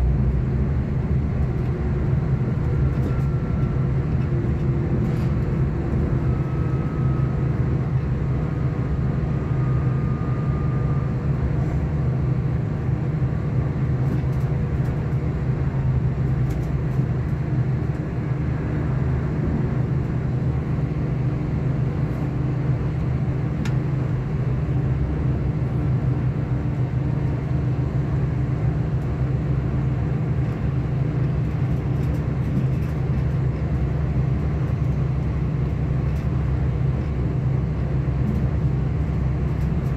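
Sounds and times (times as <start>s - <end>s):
train running noise: 0.0s - 8.8s, 26.6s - 39.9s.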